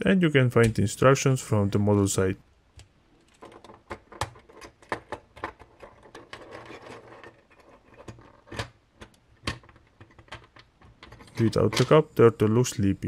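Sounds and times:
plastic parts clicking and rattling: 2.8s - 12.1s.

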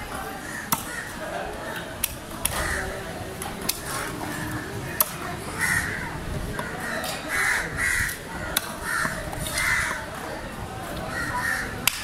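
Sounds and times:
crows cawing: 2.5s - 2.9s, 5.6s - 10.0s, 11.1s - 11.8s.

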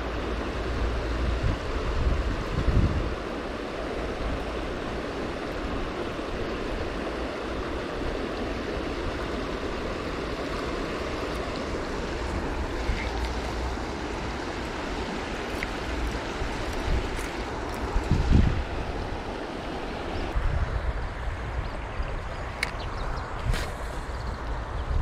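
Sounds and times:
wind blowing over microphone: 0.0s - 8.3s, 8.9s - 25.0s.

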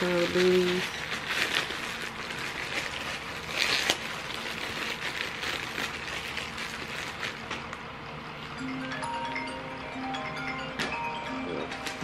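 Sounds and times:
clothes rustling and crinkling: 0.0s - 7.9s.

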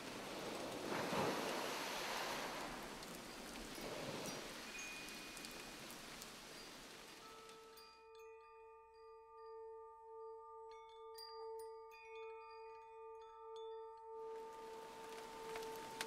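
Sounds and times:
rain-like hiss: 0.0s - 7.9s, 14.3s - 16.0s
chime-like struck notes: 6.6s - 16.0s.

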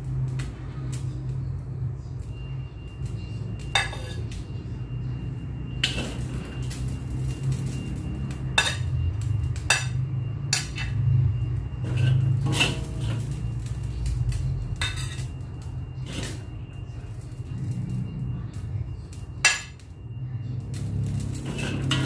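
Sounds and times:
low hum: 0.0s - 22.0s
spatula scraping a wok: 5.8s - 7.8s, 11.7s - 15.4s, 16.0s - 16.5s, 20.8s - 22.0s.

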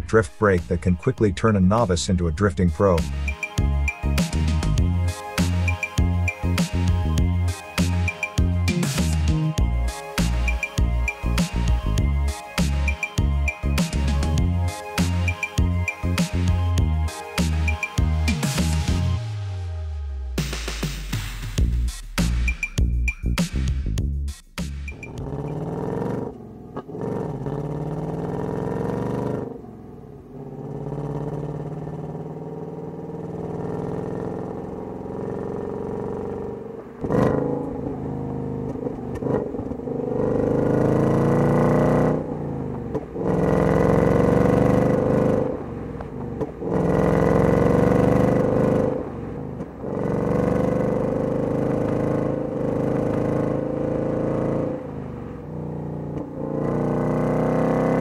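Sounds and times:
car exhaust accelerating: 22.8s - 58.0s.

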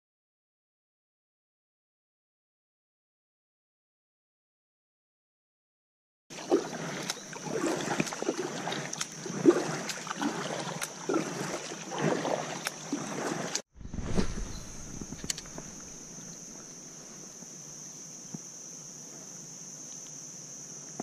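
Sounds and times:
kayak paddle splashing in water: 6.3s - 16.8s
dull thump against hull: 13.8s - 16.1s
steady high whine: 13.8s - 17.5s.

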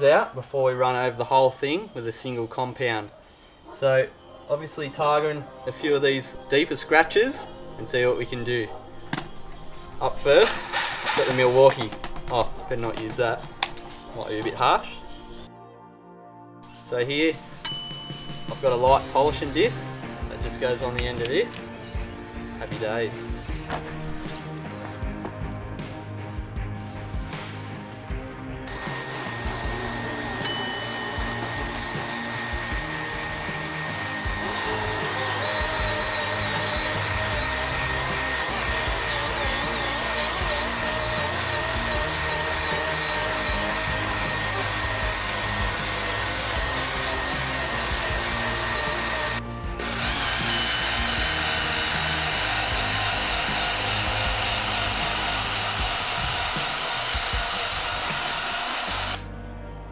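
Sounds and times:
handheld polisher whining: 10.4s - 12.0s, 28.6s - 59.3s.

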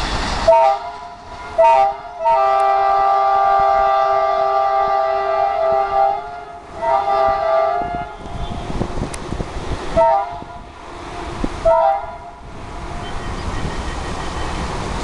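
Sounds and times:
locomotive horn blasts: 0.5s - 8.8s, 10.0s - 10.7s, 11.6s - 12.4s.

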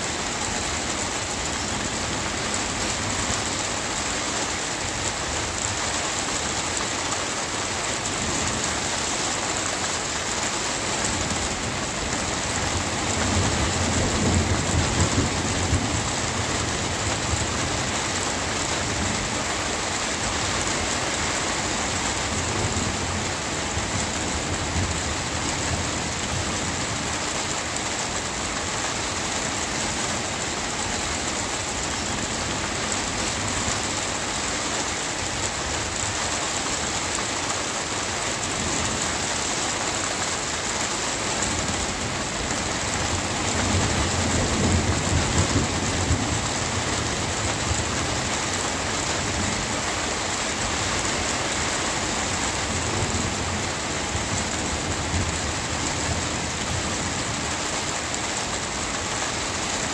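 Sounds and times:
steady rain falling: 0.0s - 59.9s
rumble of thunder: 12.7s - 18.0s, 42.7s - 48.2s.

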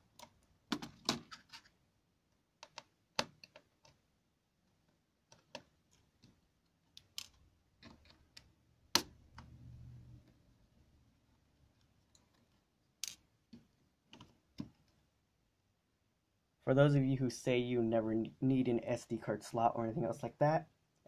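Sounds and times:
plastic parts being handled: 0.0s - 8.6s.

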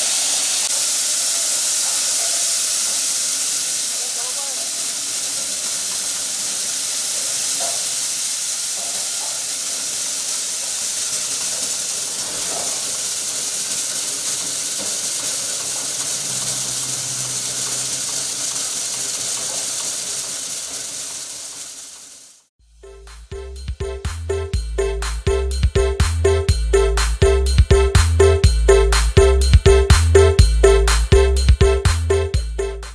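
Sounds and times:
chopper machine engine running: 0.0s - 22.5s.

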